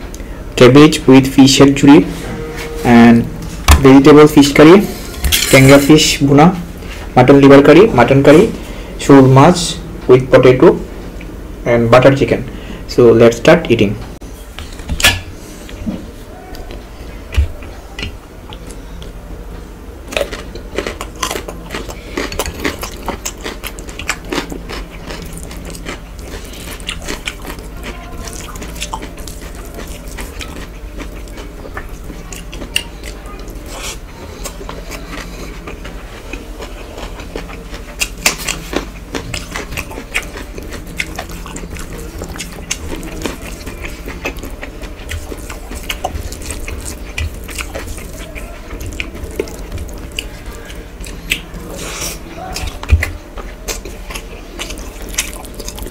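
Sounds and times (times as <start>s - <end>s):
steady low hum: 0.0s - 55.9s
wet squishes of hand mixing rice: 25.2s - 55.9s.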